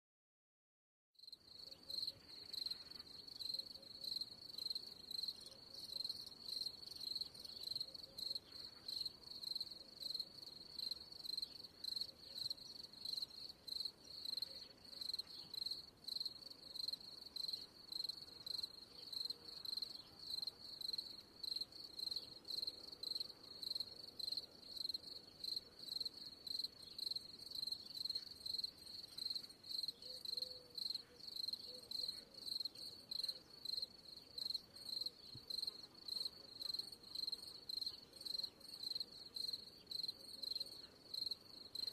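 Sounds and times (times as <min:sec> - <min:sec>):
cricket chirping: 0:01.2 - 0:41.9.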